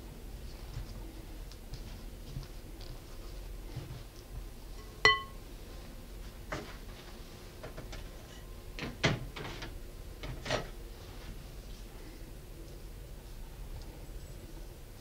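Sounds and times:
glass bowl clinking: 4.8 - 5.4.

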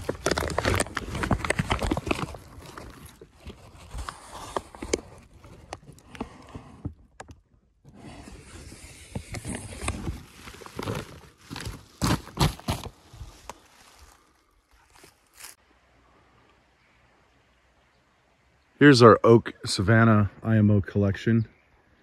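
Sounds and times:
tarp rustling against microphone: 0.0 - 6.8, 7.9 - 15.6.

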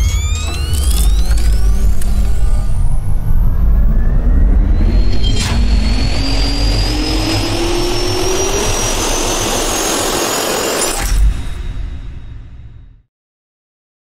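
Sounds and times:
jet turbine spooling up: 0.0 - 12.3
sharp hit: 4.5 - 12.8.

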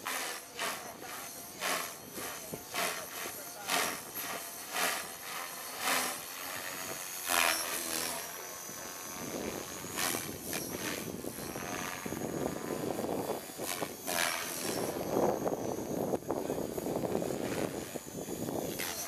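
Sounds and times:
rc helicopter motor whine: 0.0 - 19.0.

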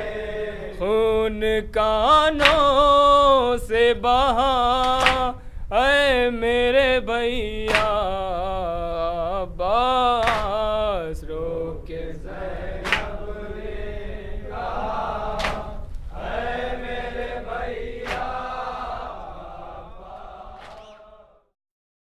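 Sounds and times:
men chanting a lament: 0.0 - 21.5
chest-beating slaps: 2.4 - 2.7, 4.8 - 5.3, 7.7 - 8.0, 10.2 - 10.6, 12.8 - 13.2, 15.3 - 16.0, 18.0 - 19.2, 20.1 - 21.1.

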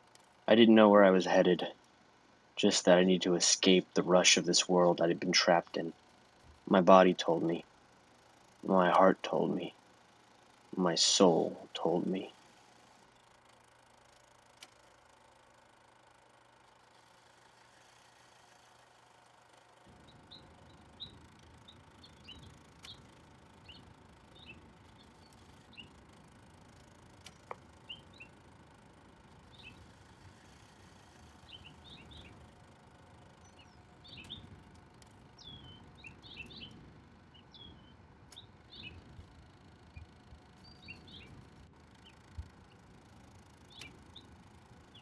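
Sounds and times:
small birds chirping: 6.6 - 7.6, 8.6 - 9.7, 10.5 - 13.4, 19.9 - 45.0.

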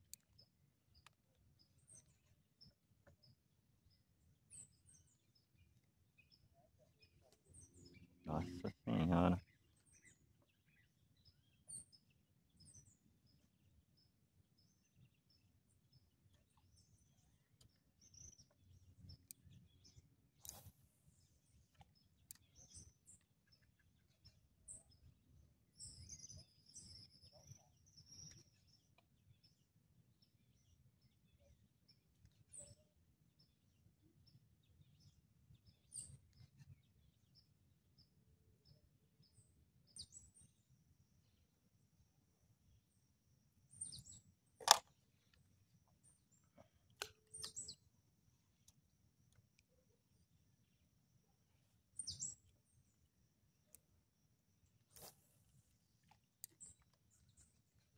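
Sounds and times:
bird chirps: 43.7 - 48.8, 51.6 - 52.9.

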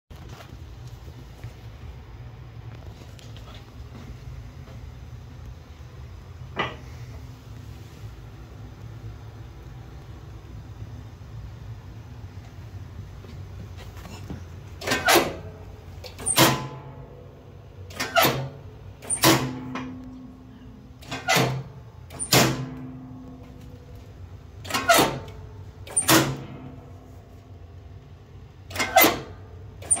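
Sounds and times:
metal door clanking: 14.8 - 17.0, 17.9 - 20.3, 21.0 - 23.5, 24.6 - 26.8.

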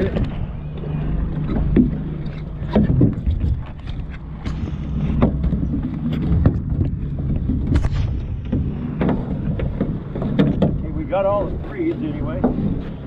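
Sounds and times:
steady low rumble: 0.0 - 13.0
gear knocking on metal boat hull: 8.3 - 13.0.

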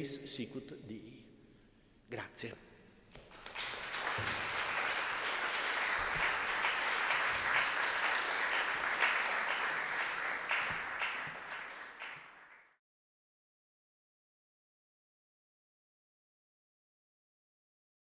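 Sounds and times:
audience applauding: 3.2 - 12.8.

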